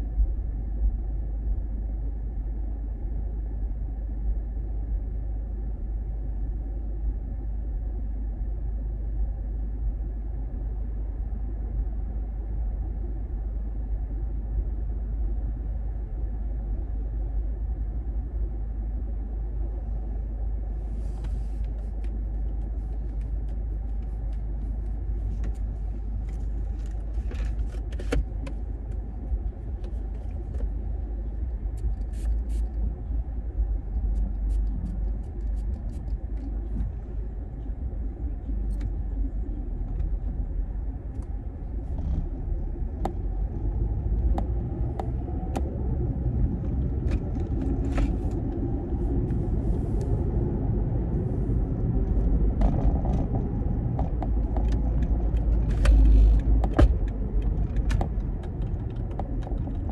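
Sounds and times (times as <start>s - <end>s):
car road and engine rumble: 0.0s - 59.9s
handling clicks and rustles: 21.2s - 30.8s.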